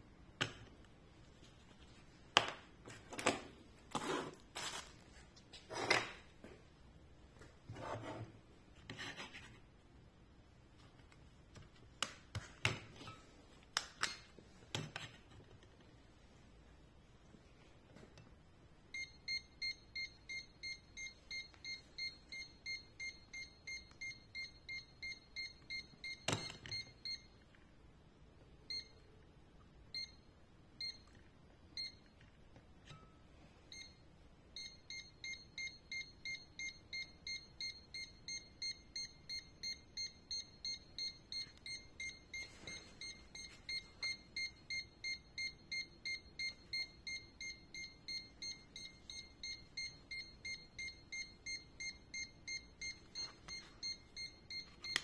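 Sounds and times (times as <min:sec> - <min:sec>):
rapid high-pitched alarm beeps: 0:34.6 - 0:54.7.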